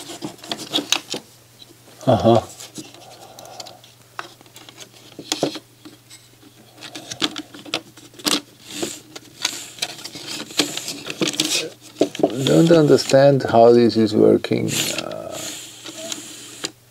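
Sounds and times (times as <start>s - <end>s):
plastic clicks and scrapes: 6.8s - 13.2s, 15.8s - 16.8s.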